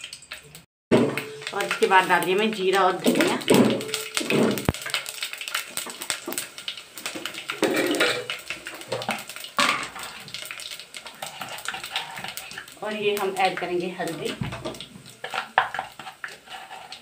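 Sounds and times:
seeds sizzling in hot oil: 0.0 - 17.0
clatter of bowls and spice box: 14.5 - 16.4.

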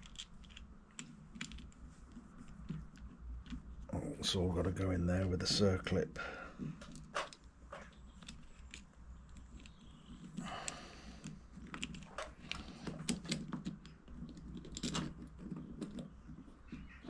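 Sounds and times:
small metal parts clicking: 0.0 - 1.8, 6.8 - 17.0.

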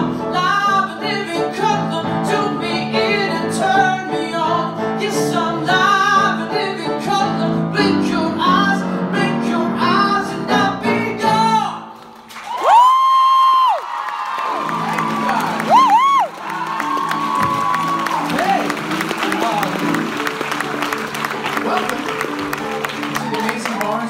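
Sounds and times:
man singing a show tune: 0.0 - 11.9
backing band playing: 14.5 - 24.0.

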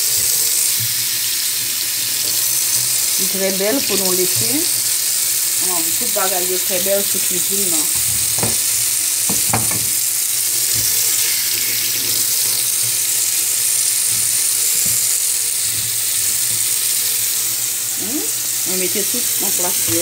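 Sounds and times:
tap water into metal sink: 7.9 - 10.0
light knocks: 8.0 - 8.7.

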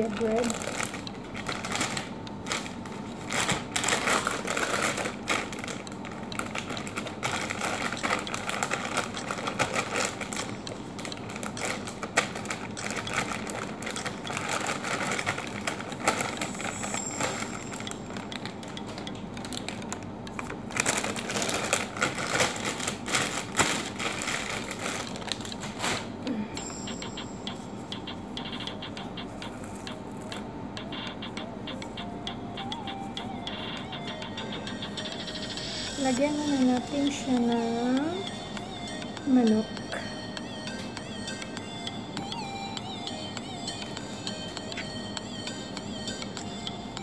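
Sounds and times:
plastic bag crinkling: 0.0 - 18.6, 19.4 - 26.2.

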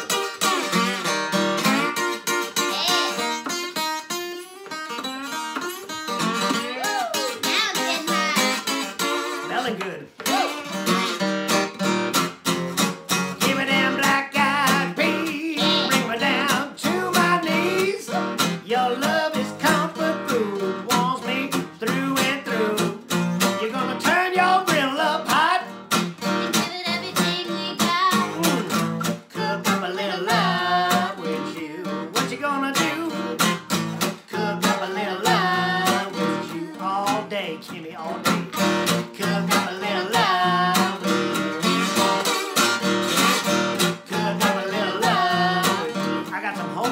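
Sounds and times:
acoustic guitar strummed: 0.0 - 46.9
man singing: 13.3 - 25.8, 26.4 - 46.9.

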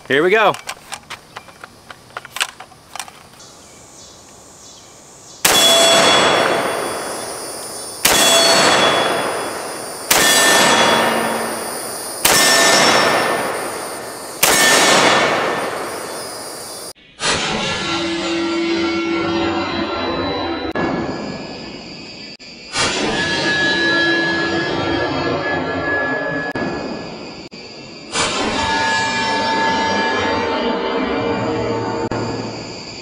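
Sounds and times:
handling clicks: 0.0 - 3.4
rifle shots: 5.4 - 16.7.

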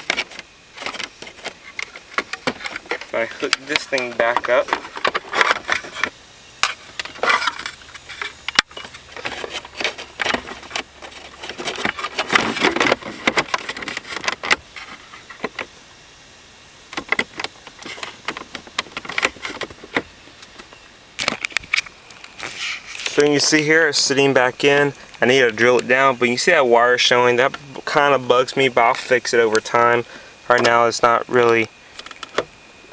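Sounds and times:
rustling of plastic and wires: 0.0 - 15.7, 17.0 - 23.7.

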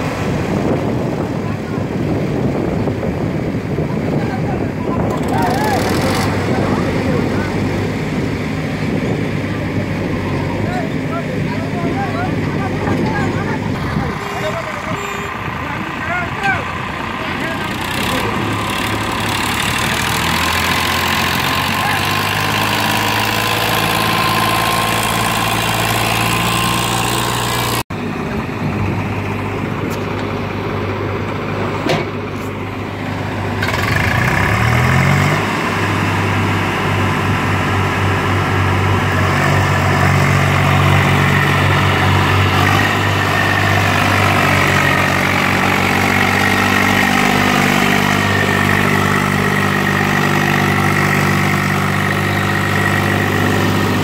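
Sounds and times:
tractor diesel engine running: 0.0 - 54.0
tractor engine revving under load: 4.9 - 54.0.

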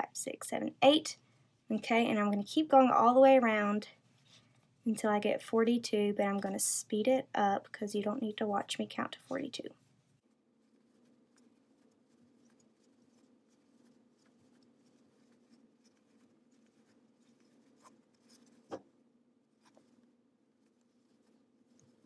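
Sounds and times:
crochet hook rubbing yarn: 9.3 - 18.8, 19.4 - 22.0.

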